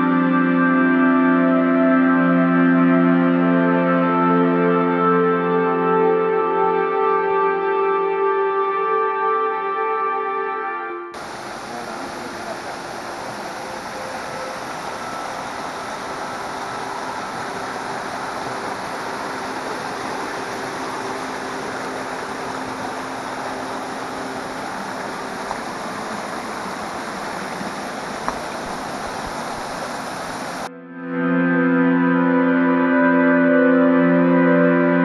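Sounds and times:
waterfall rushing water: 11.2 - 30.7.

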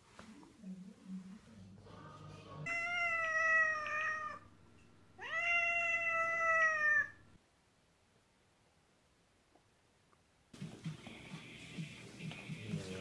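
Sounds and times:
cat meowing: 2.7 - 4.5, 5.2 - 7.4.

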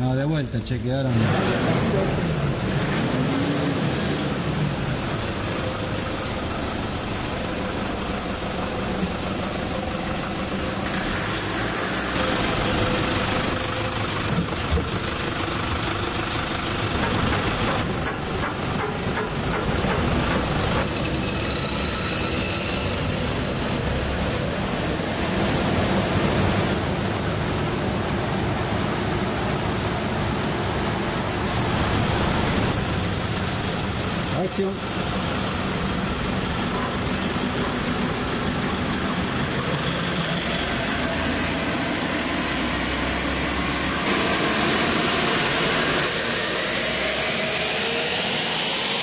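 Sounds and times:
diesel engine on dynamometer: 0.4 - 49.0
tyres spinning steel rollers: 5.0 - 26.9.

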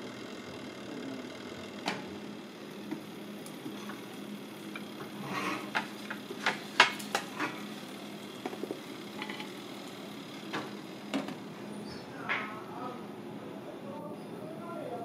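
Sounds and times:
steady low hum: 0.0 - 15.0
metal gripper clanking on dish: 9.2 - 9.5.

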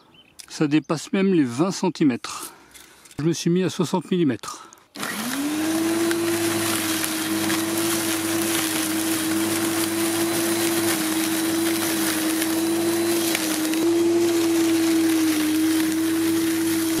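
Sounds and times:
electric lawnmower whining: 5.0 - 17.0.

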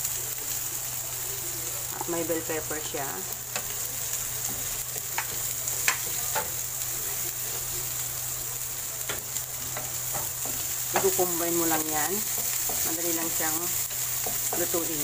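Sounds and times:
vegetables sizzling in frying pan: 0.0 - 15.0
wooden spatula tapping and scraping: 4.4 - 6.6, 9.0 - 15.0.

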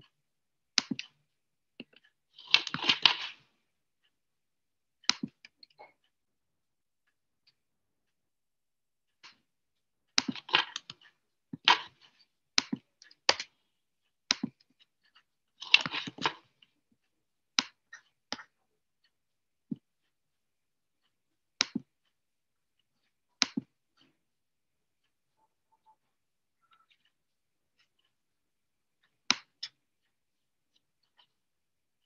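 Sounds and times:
sharp clicks and taps: 0.0 - 3.5, 5.0 - 6.1, 10.1 - 20.2, 21.0 - 22.2, 22.8 - 24.2, 29.0 - 31.4.

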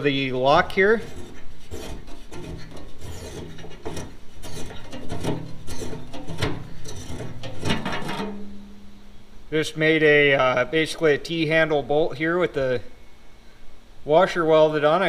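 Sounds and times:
bolt threads scraping and clicking: 1.0 - 8.4.

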